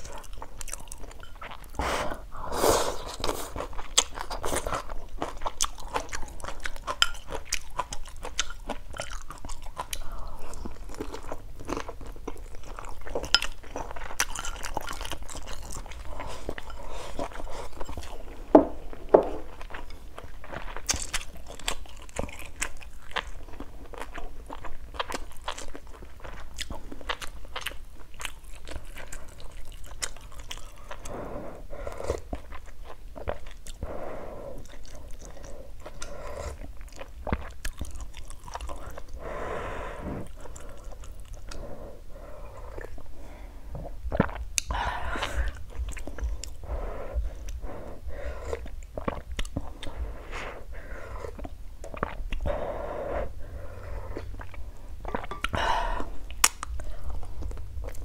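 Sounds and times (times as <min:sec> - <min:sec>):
chewing and crunching: 0:00.0 - 0:02.2, 0:02.9 - 0:39.3, 0:40.2 - 0:52.7, 0:53.4 - 0:58.0
wet mouth sounds: 0:43.8 - 0:58.0.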